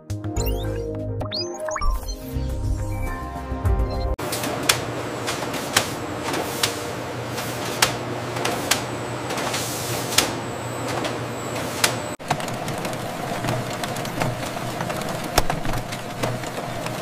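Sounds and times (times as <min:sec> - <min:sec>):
factory machinery humming: 0:04.2 - 0:17.0.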